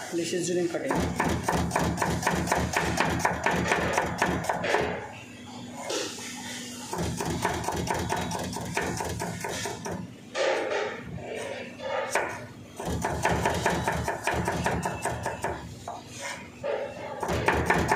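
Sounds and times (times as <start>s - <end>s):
knife chopping onion: 0.9s - 4.7s, 6.9s - 10.0s, 12.1s - 16.0s, 17.2s - 17.9s.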